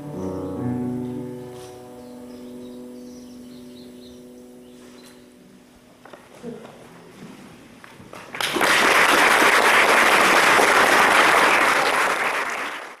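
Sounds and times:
audience applauding: 0:08.1 - 0:13.0.

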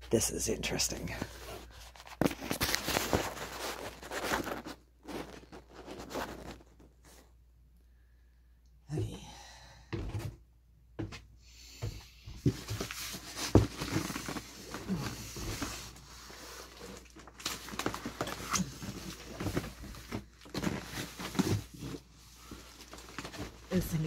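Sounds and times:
cardboard scraping and rustling: 0:01.2 - 0:07.3, 0:12.4 - 0:24.0
box knocks and thumps: 0:12.4 - 0:14.3.

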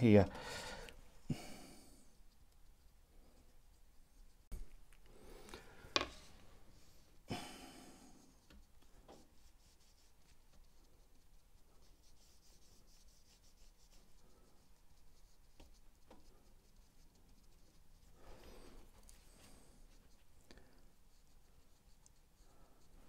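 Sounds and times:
paintbrush scratching on canvas: 0:08.2 - 0:23.0.

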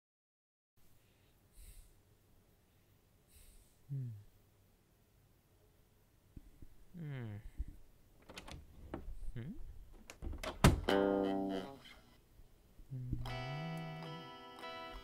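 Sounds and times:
electric guitar chords: 0:10.8 - 0:12.0, 0:13.2 - 0:15.0.

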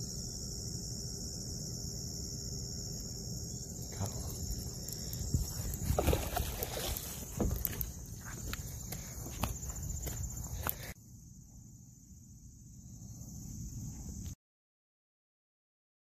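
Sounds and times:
rustling and rubbing of gear: 0:05.1 - 0:11.0.

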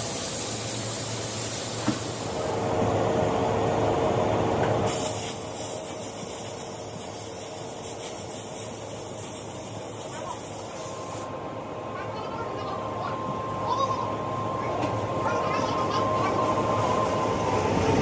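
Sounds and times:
compressed air blow gun hissing: 0:00.0 - 0:02.5, 0:04.9 - 0:11.3.

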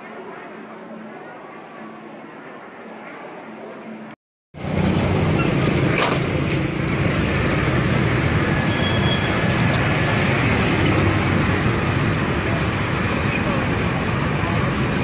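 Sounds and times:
road traffic rumble: 0:04.6 - 0:15.0.

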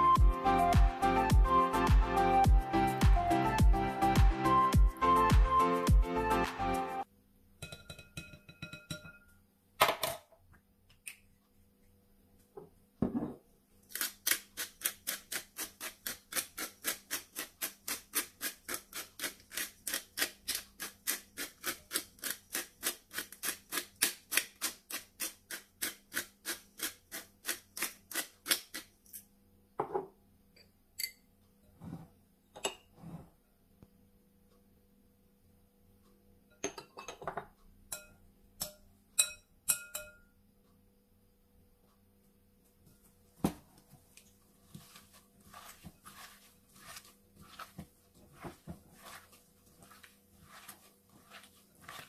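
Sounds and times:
bowls and utensils clinking: 0:07.6 - 0:09.4
pepper mill grinding: 0:13.9 - 0:29.2, 0:44.8 - 0:52.0.

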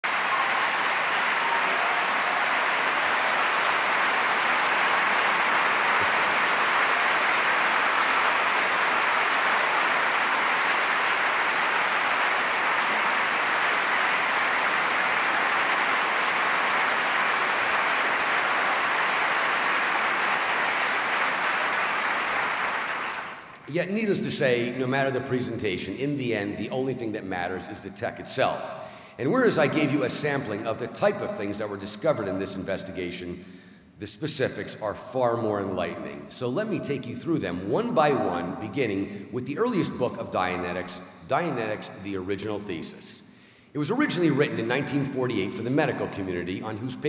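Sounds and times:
large audience applauding: 0:00.0 - 0:23.7.

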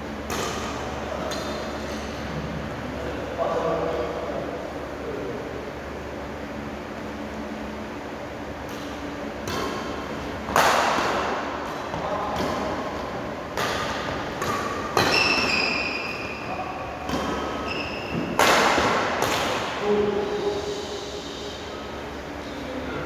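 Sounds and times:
rackets hitting shuttlecock: 0:00.3 - 0:02.1, 0:08.7 - 0:19.8.

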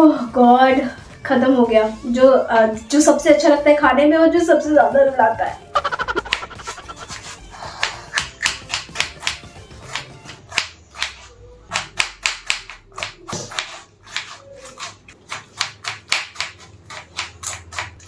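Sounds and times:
knife chopping on wooden board: 0:07.8 - 0:18.0.

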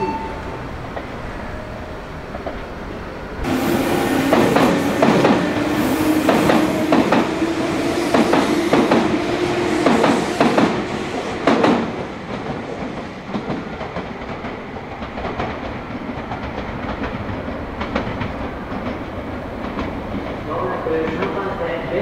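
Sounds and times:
electric train wheels clacking: 0:03.4 - 0:22.0.

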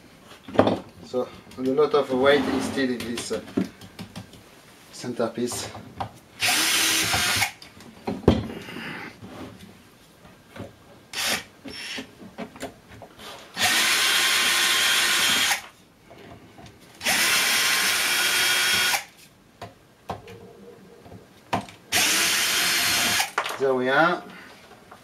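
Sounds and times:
cordless drill driving screws: 0:06.4 - 0:07.6, 0:11.1 - 0:12.1, 0:13.6 - 0:15.7, 0:17.0 - 0:19.1, 0:21.9 - 0:23.4.

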